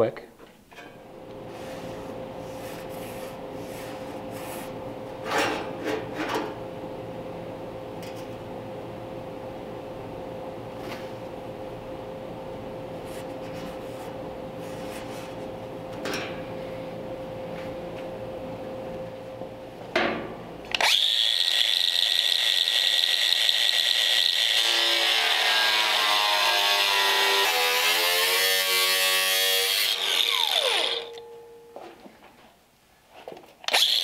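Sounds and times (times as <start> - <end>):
low steady hum: 0.0 - 20.8, 29.9 - 33.7
power drill whining into steel: 20.7 - 31.3, 33.7 - 34.0.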